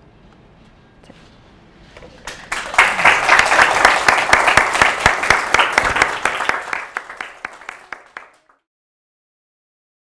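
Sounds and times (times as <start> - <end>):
audience applause: 2.3 - 8.6.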